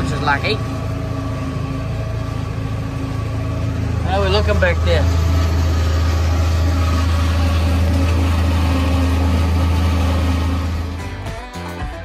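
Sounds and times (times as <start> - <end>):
tractor engine drone under load: 0.0 - 12.0.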